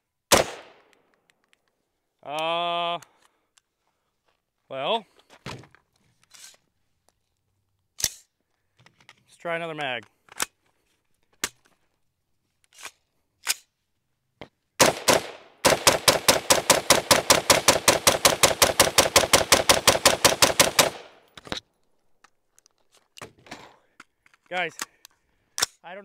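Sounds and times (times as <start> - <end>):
rifle shots: 0.3 - 0.9, 14.8 - 21.3
rifle handling clicks: 0.5 - 1.8.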